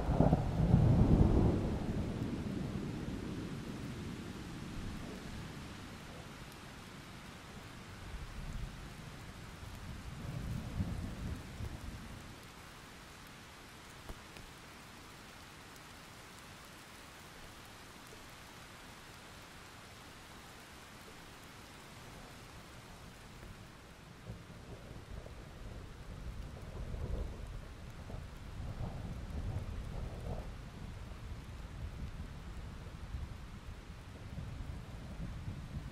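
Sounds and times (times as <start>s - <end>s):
faint steady hiss: 0.0s - 35.9s.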